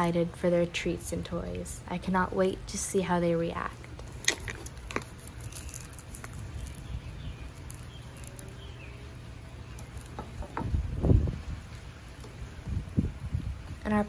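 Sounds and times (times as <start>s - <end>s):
low steady hum: 0.0s - 14.0s
cellophane crinkling and clicks: 4.0s - 8.7s.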